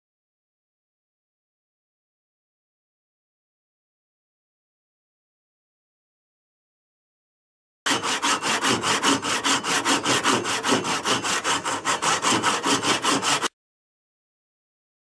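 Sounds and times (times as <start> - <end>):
handsaw cutting wood: 7.9 - 13.6.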